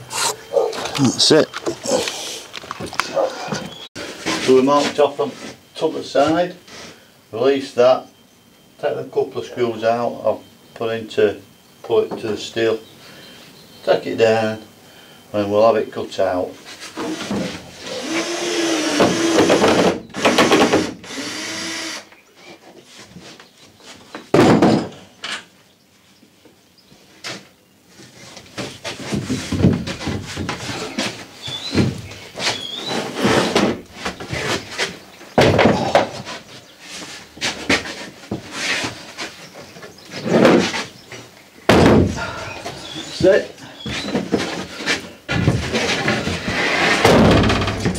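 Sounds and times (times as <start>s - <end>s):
power drill running: 17.8s - 22.1s
knocks and thuds of plywood: 24.1s - 25.0s, 28.6s - 34.6s, 35.4s - 36.3s, 41.7s - 42.3s, 45.3s - 47.9s.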